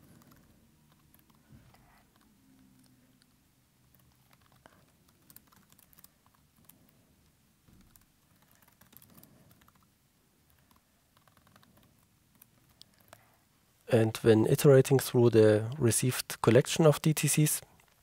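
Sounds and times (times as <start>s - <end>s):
keyboard typing: 0.0s - 7.0s, 7.7s - 13.2s.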